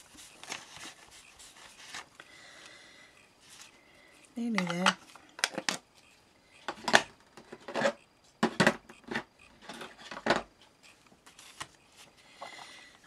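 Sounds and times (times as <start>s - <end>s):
plastic cases clattering on table: 6.7s - 10.5s.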